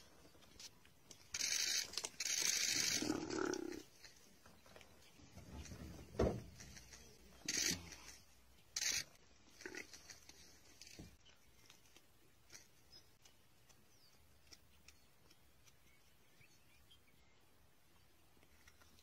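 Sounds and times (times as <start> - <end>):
breathy animal noise: 2.5 - 3.9.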